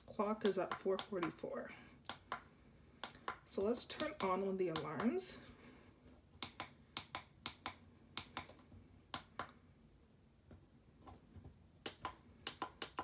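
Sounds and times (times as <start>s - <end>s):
alarm clock buttons clicking: 0.4s - 1.4s, 2.1s - 5.1s.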